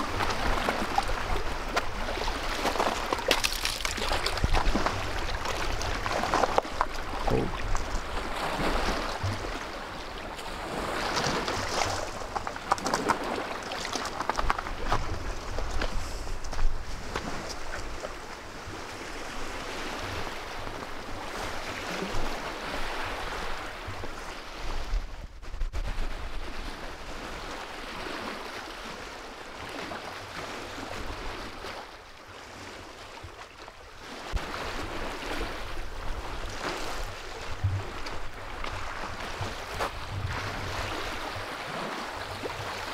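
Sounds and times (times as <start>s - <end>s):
waves lapping on water: 0.0s - 42.9s
wind rumbling on microphone: 3.8s - 28.3s, 34.4s - 42.9s.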